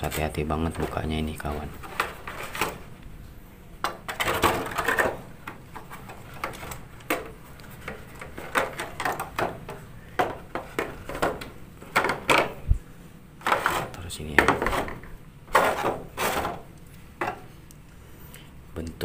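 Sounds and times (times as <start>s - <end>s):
plastic rustle: 0.0s - 3.0s.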